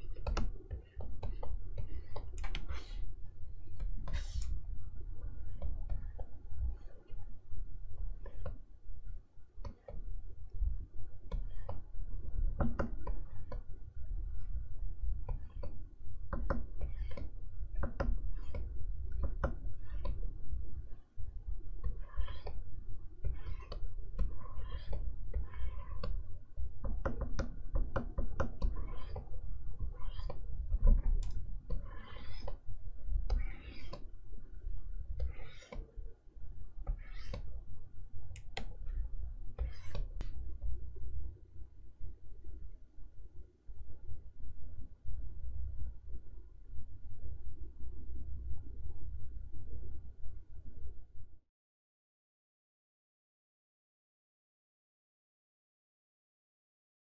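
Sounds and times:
stylus tapping and scratching screen: 0.0s - 8.7s, 9.6s - 37.7s, 38.3s - 41.0s.

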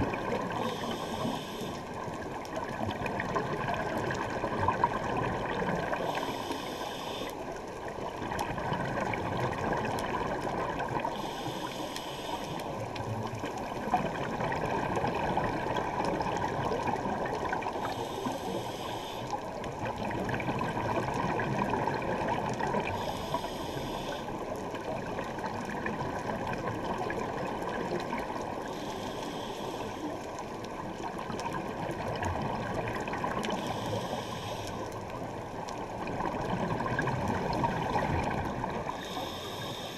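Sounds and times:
muffled water and bubbles: 0.0s - 39.9s
scuba regulator breath hiss: 0.6s - 1.9s, 5.9s - 7.4s, 11.1s - 12.7s, 17.8s - 19.4s, 22.9s - 24.4s, 28.7s - 30.2s, 33.6s - 34.9s, 38.9s - 39.9s.

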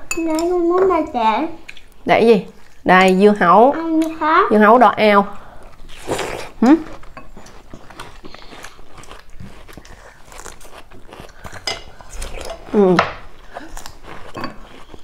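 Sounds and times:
biting and chewing food: 5.5s - 15.0s.

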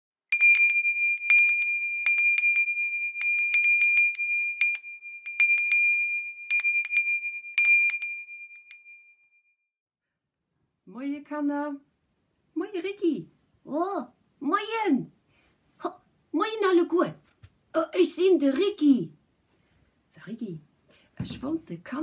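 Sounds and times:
small bell ringing: 0.3s - 9.6s.

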